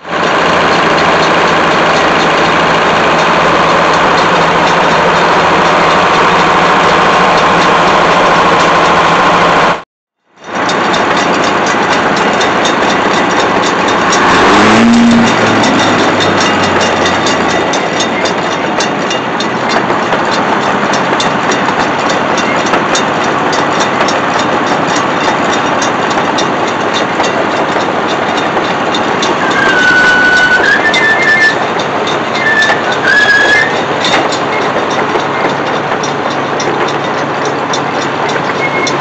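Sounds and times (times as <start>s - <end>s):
circular sawmill running: 0.0s - 39.0s
brief high squeal: 29.4s - 31.7s, 32.4s - 33.9s.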